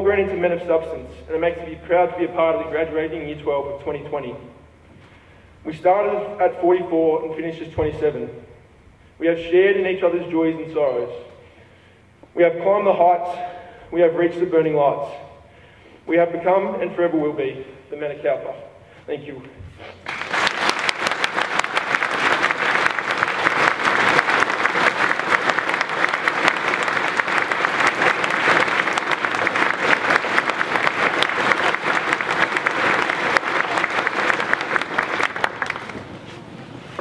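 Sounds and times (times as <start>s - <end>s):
large audience applauding: 20.0s - 36.2s.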